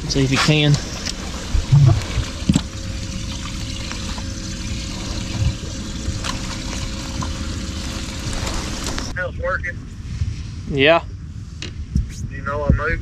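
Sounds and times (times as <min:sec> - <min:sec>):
water trickling and pouring: 0:00.0 - 0:09.1.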